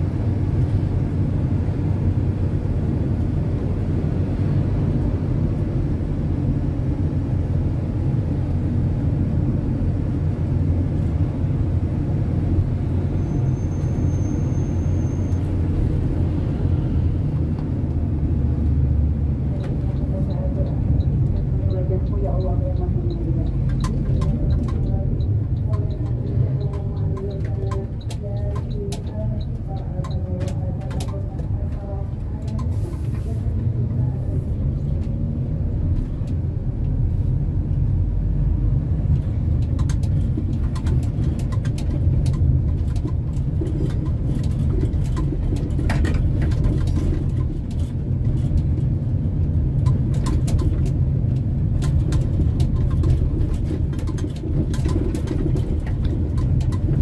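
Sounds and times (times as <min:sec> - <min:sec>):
car engine and road rumble: 0:00.0 - 0:57.0
light clicks and rattles: 0:39.1 - 0:57.0.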